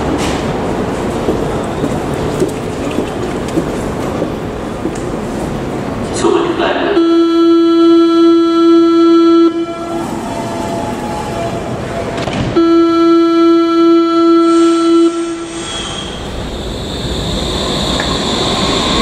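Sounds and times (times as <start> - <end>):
train door warning buzz: 12.5 - 19.0.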